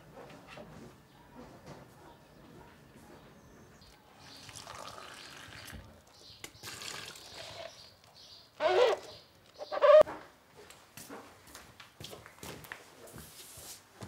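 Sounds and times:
water trickling: 4.2s - 7.9s
loud squeaks: 8.6s - 10.1s.

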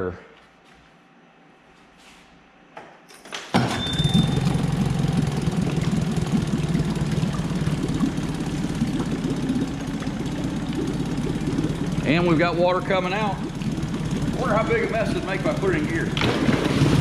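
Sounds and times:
outboard motor starting and idling: 3.5s - 17.0s
short high beep: 3.7s - 4.5s.

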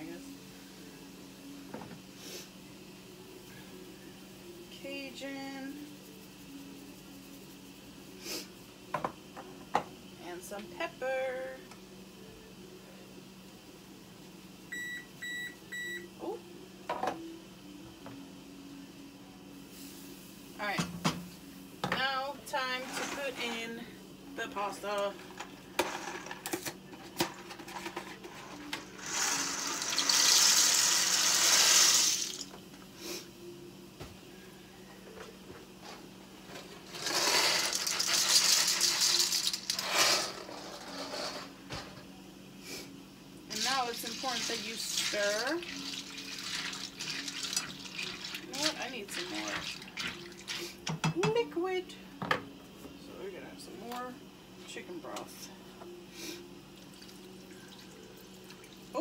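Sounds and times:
dry pasta rattling into a pan: 36.9s - 41.5s.

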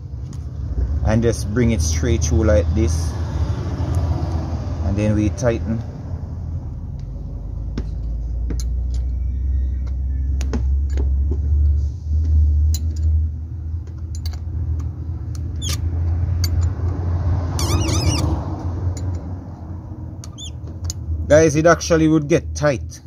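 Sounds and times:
steady low rumble: 0.0s - 17.5s
spanner metal clicks: 13.8s - 17.0s.

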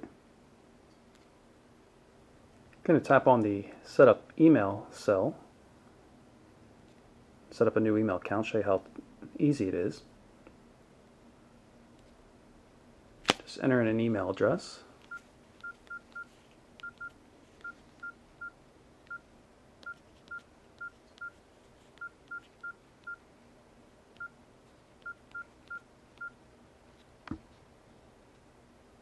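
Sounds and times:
phone keypad beeps: 15.1s - 19.2s, 19.8s - 21.4s, 22.0s - 23.2s, 25.0s - 26.4s.

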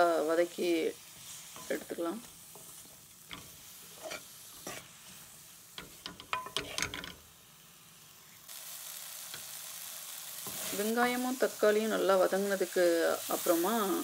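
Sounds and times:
onion and tomato sizzling: 0.0s - 14.0s
wooden spatula scraping pan: 1.2s - 5.2s, 5.8s - 7.2s.

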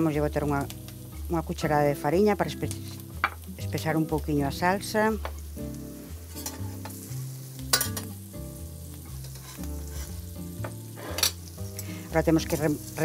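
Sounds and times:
onion sizzling in a pan: 0.0s - 13.0s
spatula scraping a pan: 9.2s - 11.5s.

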